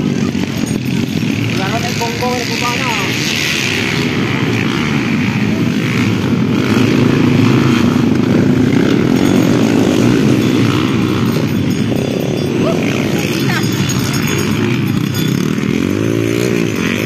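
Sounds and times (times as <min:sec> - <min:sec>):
motorcycle engines revving: 0:00.0 - 0:17.0.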